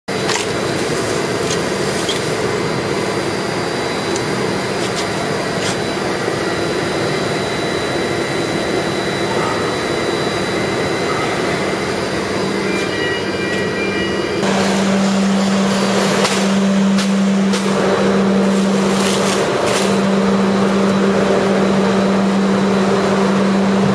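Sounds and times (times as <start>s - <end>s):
pump machine droning: 0.1s - 23.9s.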